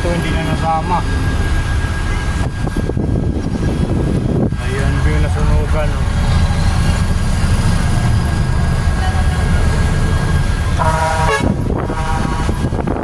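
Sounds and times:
truck engine rumble: 0:00.0 - 0:13.0
vehicle horn toots: 0:10.7 - 0:12.9.

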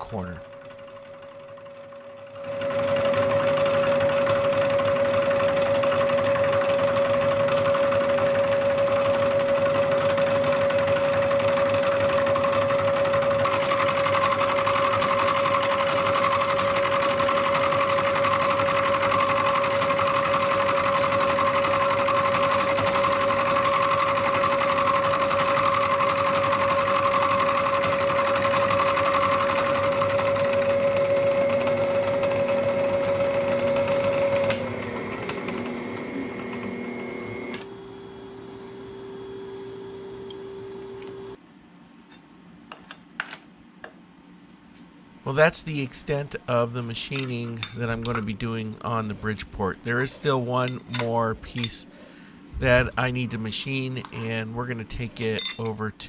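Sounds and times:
milling machine whine: 0:00.0 - 0:41.4.

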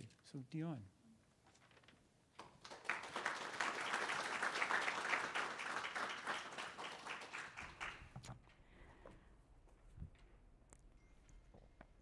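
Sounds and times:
audience applauding: 0:02.4 - 0:08.2.

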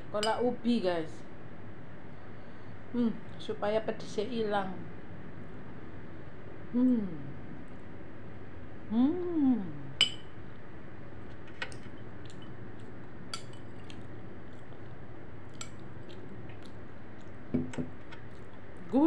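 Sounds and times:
person humming: 0:06.7 - 0:07.4, 0:08.9 - 0:10.0
spoon clinking on glass bowl: 0:10.0 - 0:10.3.

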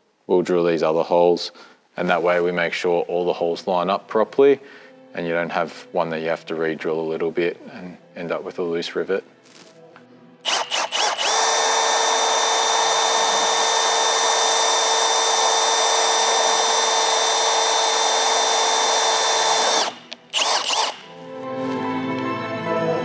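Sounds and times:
background music: 0:02.0 - 0:12.1, 0:19.7 - 0:23.0
cordless drill whining: 0:10.4 - 0:21.2.

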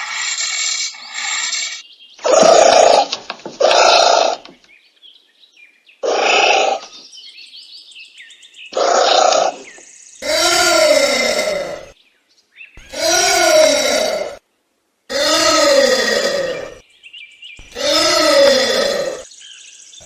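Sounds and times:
anteater harsh cries: 0:06.0 - 0:06.9, 0:10.2 - 0:11.9, 0:12.8 - 0:14.4, 0:15.1 - 0:16.8, 0:17.7 - 0:19.3.

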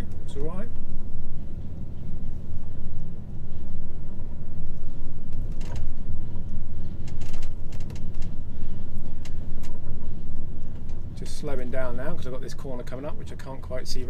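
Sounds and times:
truck engine rumble inside cab: 0:00.0 - 0:14.0.

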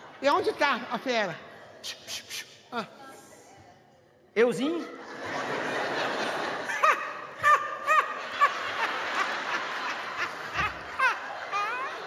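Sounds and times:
audience laughter: 0:05.0 - 0:12.0.

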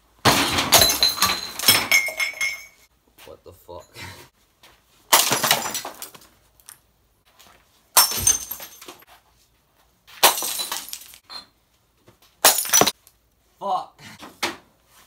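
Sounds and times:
glass smashing: 0:00.2 - 0:02.9, 0:05.1 - 0:06.2, 0:08.0 - 0:09.0, 0:10.2 - 0:11.5, 0:12.4 - 0:13.0
glass shards rattling: 0:00.3 - 0:02.9, 0:10.2 - 0:11.5.

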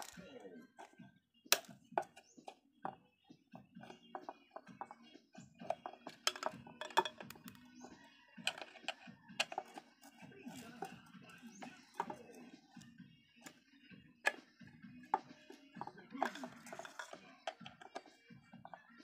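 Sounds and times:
screwdriver clicking on metal: 0:05.6 - 0:12.4, 0:15.8 - 0:18.2.

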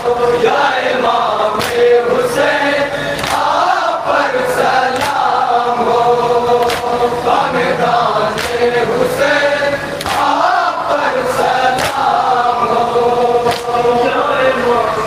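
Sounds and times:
men chanting in unison: 0:00.0 - 0:15.0
chest-beating slaps: 0:01.6 - 0:01.9, 0:08.4 - 0:08.6, 0:11.8 - 0:12.1, 0:13.5 - 0:13.8.

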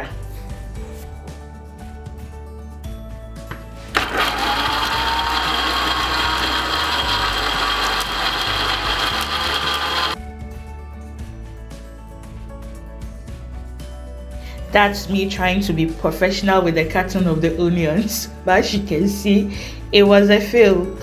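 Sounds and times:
blender grinding: 0:03.9 - 0:10.2.

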